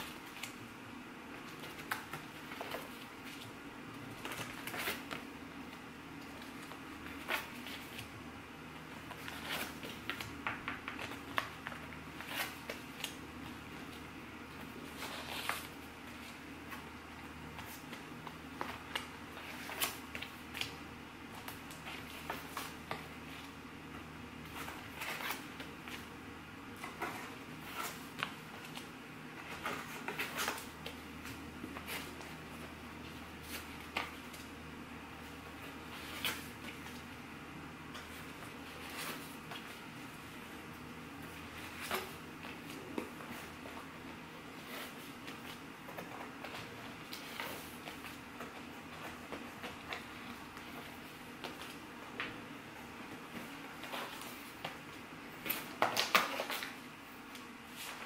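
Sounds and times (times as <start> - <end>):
steady low hum: 0.0 - 58.0.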